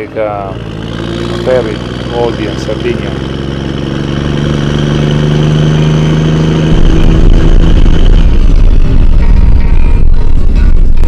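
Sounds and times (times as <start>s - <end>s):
vehicle engine running: 0.0s - 11.0s
music with heavy pulsing beat: 5.7s - 11.0s.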